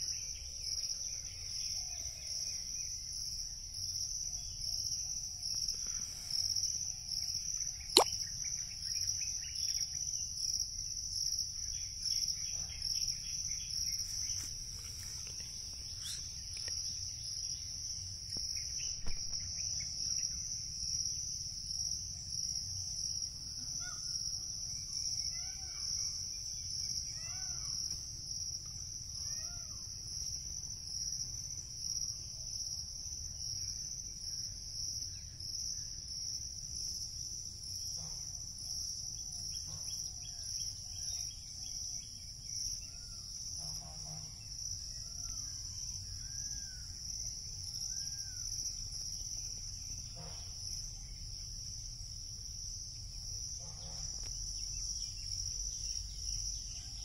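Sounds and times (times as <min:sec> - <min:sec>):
high-pitched insect chorus: 0:00.0 - 0:57.0
higher pulsing insect sound: 0:00.0 - 0:57.0
bird calls: 0:15.3 - 0:16.8.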